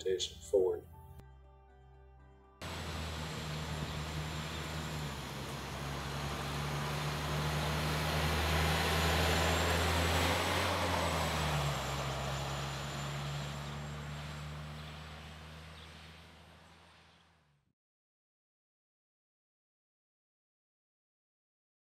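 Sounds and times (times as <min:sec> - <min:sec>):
bus driving past: 0:02.6 - 0:17.7.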